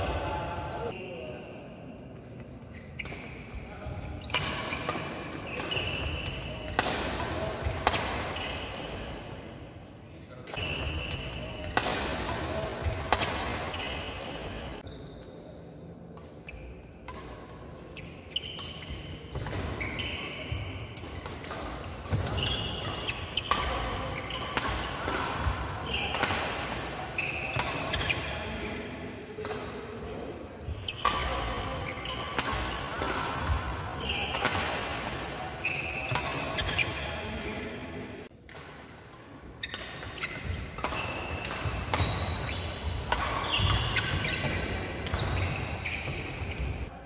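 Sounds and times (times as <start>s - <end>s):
shoes squeaking on court: 2.6s - 6.8s, 7.4s - 9.2s, 13.2s - 15.5s, 17.9s - 28.8s, 30.6s - 37.7s, 39.6s - 46.9s
rackets hitting shuttlecock: 4.2s - 9.4s, 10.4s - 14.8s, 18.0s - 37.5s, 38.4s - 46.9s.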